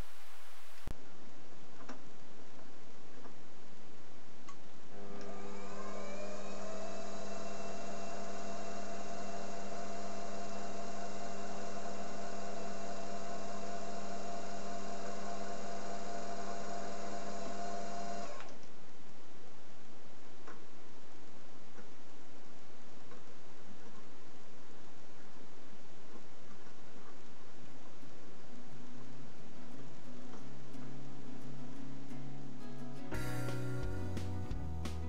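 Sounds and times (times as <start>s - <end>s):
lathe motor whining: 5.0s - 18.4s.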